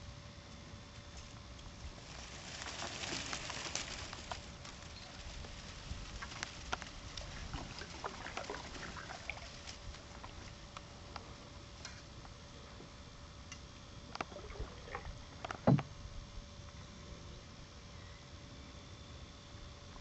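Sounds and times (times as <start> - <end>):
low background hiss: 0.0 - 20.0
small water splashes: 6.1 - 10.6, 14.2 - 15.8
water drips: 6.2 - 10.8.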